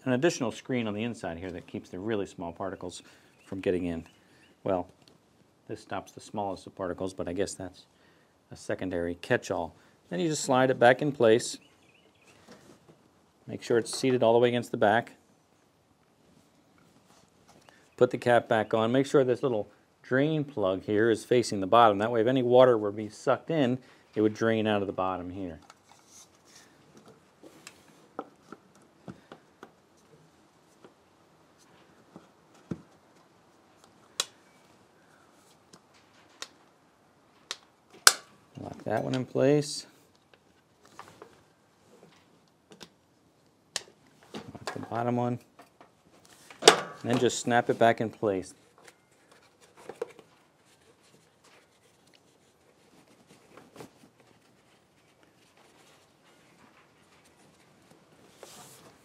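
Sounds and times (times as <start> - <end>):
plastic duct clicks and rubs: 31.7 - 34.4, 35.5 - 36.7, 48.5 - 59.0.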